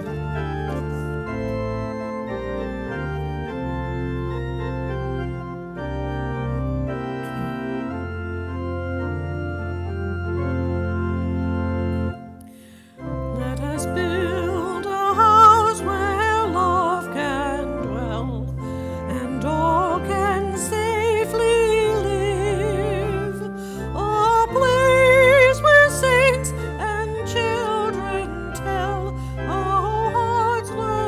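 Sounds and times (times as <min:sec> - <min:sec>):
organ playing held chords: 0:00.0 - 0:31.0
woman singing with vibrato: 0:13.3 - 0:18.4, 0:19.1 - 0:31.0.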